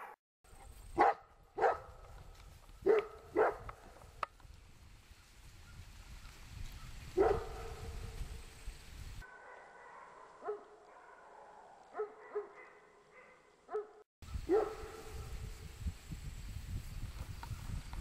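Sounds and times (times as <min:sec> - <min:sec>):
dog barking: 0:01.0 - 0:02.0, 0:02.8 - 0:03.7, 0:07.2 - 0:08.0, 0:09.2 - 0:15.3
low rumble on microphone: 0:14.3 - 0:18.0.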